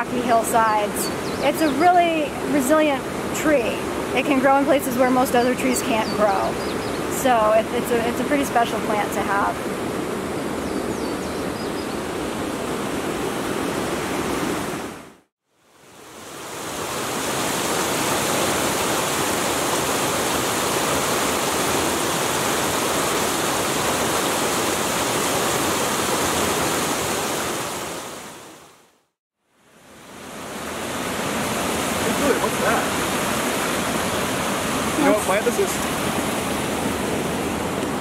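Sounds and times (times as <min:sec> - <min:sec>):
brook rushing over cascades: 0:15.8 - 0:28.7, 0:29.8 - 0:38.0.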